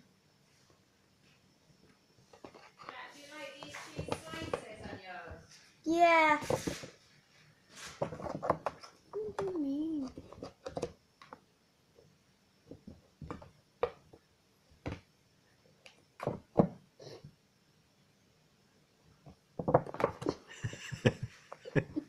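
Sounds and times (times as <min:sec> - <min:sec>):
kittens batting cardboard box: 0:03.6 - 0:05.1.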